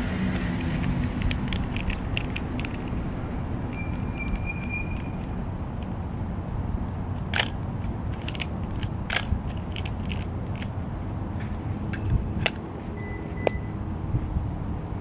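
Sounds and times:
film camera clicks and snaps: 0:00.4 - 0:03.0, 0:07.2 - 0:10.7, 0:12.4 - 0:12.6.

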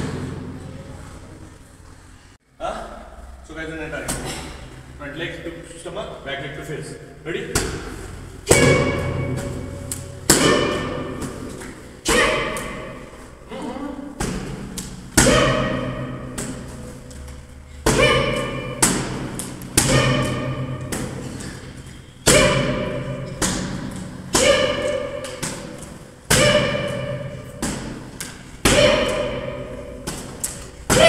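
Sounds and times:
kicks slapping padded mitts: 0:07.6 - 0:12.9, 0:14.2 - 0:16.9, 0:17.8 - 0:21.4, 0:22.2 - 0:31.0.

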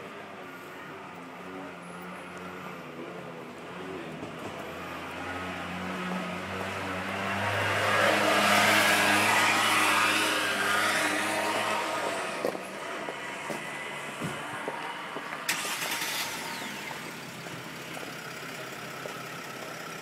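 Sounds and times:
motor vehicle passing by: 0:01.4 - 0:17.2.

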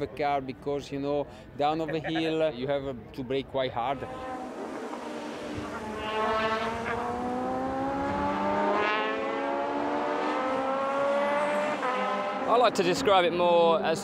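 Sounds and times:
racing car engine at full throttle: 0:04.0 - 0:12.6.

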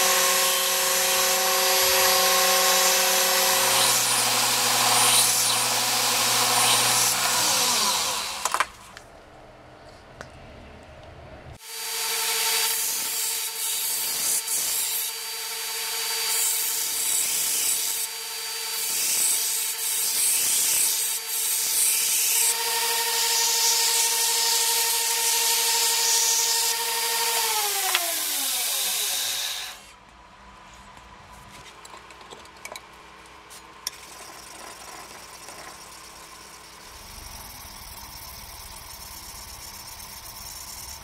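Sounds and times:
blade grinding on belt: 0:00.0 - 0:08.9, 0:12.2 - 0:29.9, 0:33.8 - 0:41.0
grinder motor hum: 0:00.0 - 0:09.0, 0:22.3 - 0:29.9, 0:33.8 - 0:41.0.

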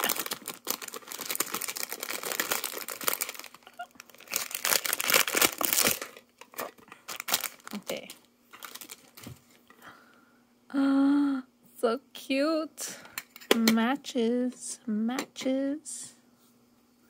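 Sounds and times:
cellophane crinkling and tearing: 0:00.0 - 0:09.4.

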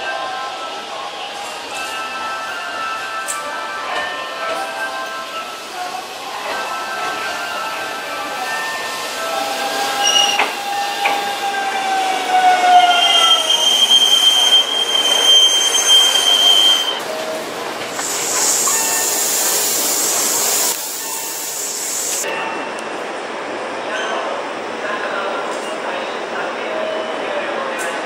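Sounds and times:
train wheels squealing: 0:09.6 - 0:17.0
steady high hiss: 0:17.8 - 0:22.2.

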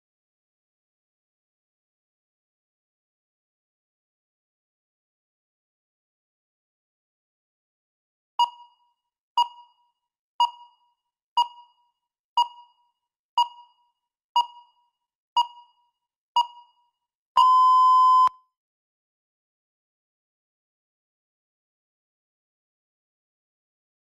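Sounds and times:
timer beeping: 0:08.4 - 0:18.3.

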